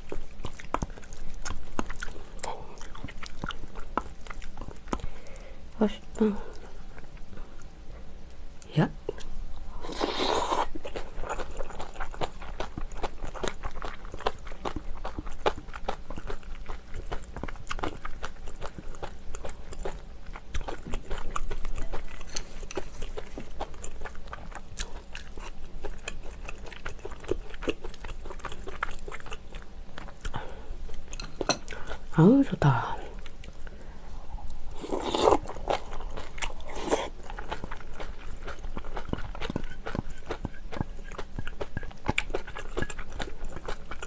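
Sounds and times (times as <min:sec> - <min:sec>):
chewing mouth sounds: 0:00.0 - 0:05.4, 0:09.9 - 0:32.1, 0:34.4 - 0:44.0.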